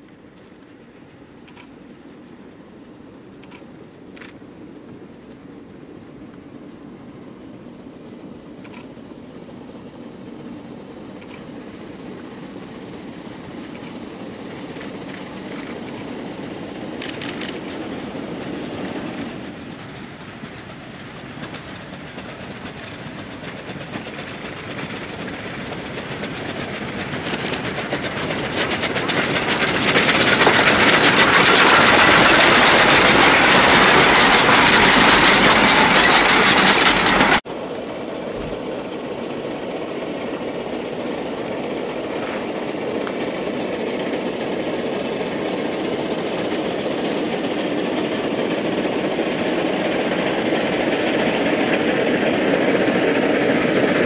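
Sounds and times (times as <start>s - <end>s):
steam locomotive running: 0.0s - 54.0s.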